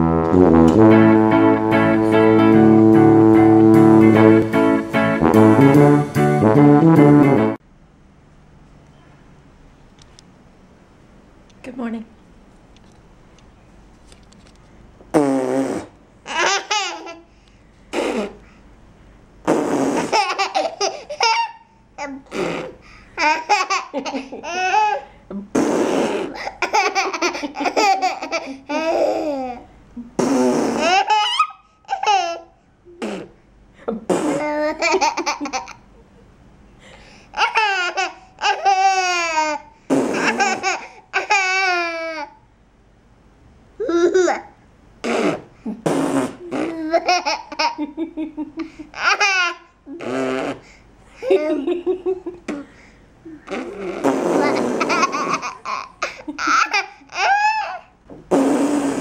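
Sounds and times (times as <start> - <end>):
baby laughing: 16.3 - 17.3, 20.0 - 25.2, 25.9 - 29.7, 30.8 - 33.3, 34.1 - 35.9, 37.3 - 42.4, 43.8 - 45.5, 46.3 - 50.6, 51.2 - 52.6, 53.4 - 57.9
baby squealing: 30.8 - 32.4, 53.5 - 57.9.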